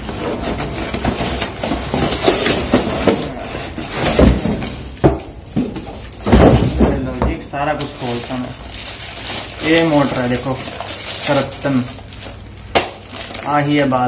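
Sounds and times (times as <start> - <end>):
knocks and thumps: 0.0 - 7.5
cardboard and plastic rustling: 0.0 - 14.0.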